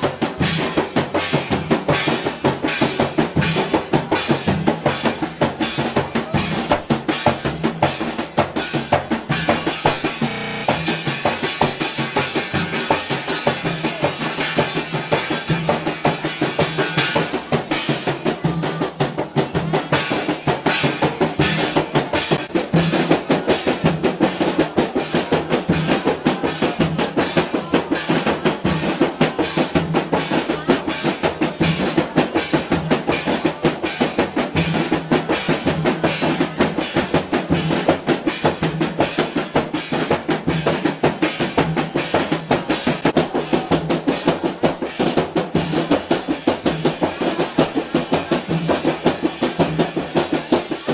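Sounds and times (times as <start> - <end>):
frame drums beaten by hand: 0.0 - 50.9
snare drum played with sticks: 0.0 - 50.9.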